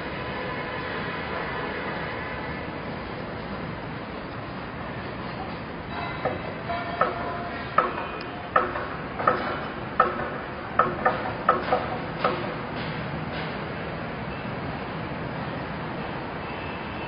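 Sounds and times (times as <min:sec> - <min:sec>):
steady background noise: 0:00.0 - 0:17.0
sharp ringing knocks: 0:05.9 - 0:13.6.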